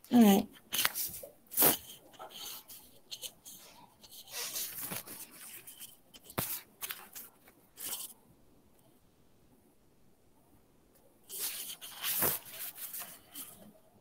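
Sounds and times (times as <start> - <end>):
rustling handling noise: 0.1 - 8.2, 11.3 - 13.8.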